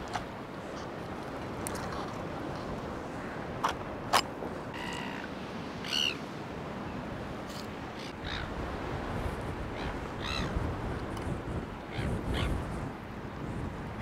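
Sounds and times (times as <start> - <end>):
birds cawing: 9.8 - 10.5.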